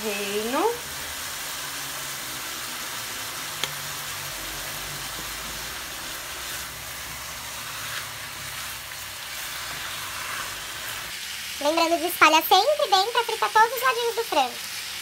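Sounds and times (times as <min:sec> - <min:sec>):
chicken sizzling in frying pan: 0:00.0 - 0:15.0
spatula stirring taps: 0:05.0 - 0:06.8.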